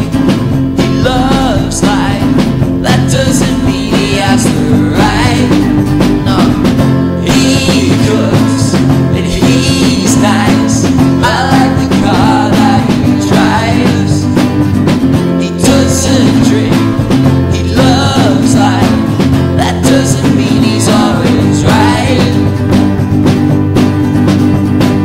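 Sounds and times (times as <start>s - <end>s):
drum kit: 0.0s - 25.0s
guitars strummed: 0.0s - 25.0s.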